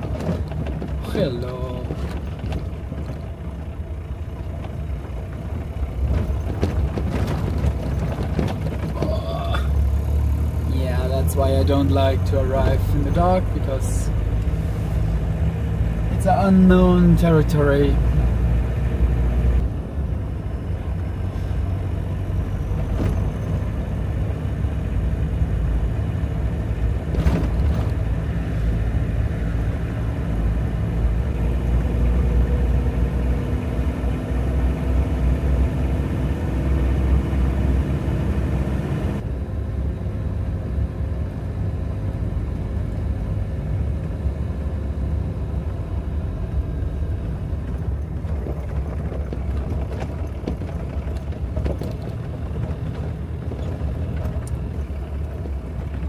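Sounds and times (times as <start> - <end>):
knocks from bumps: 0.0 - 3.3, 6.0 - 9.7, 27.0 - 28.1
vehicle engine and road rumble: 0.0 - 56.0.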